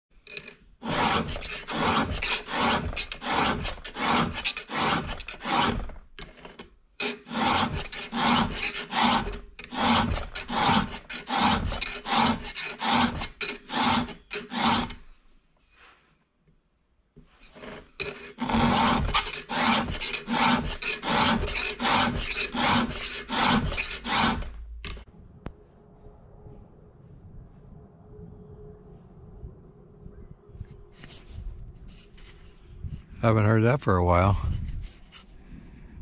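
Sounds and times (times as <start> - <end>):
file scraping chainsaw chain: 0.2 - 15.0, 17.4 - 25.0.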